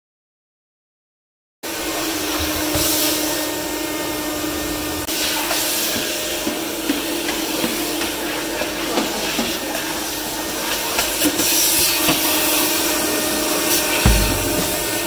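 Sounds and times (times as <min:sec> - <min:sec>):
vacuum cleaner humming: 0:01.7 - 0:15.0
light knocks: 0:14.1 - 0:15.0.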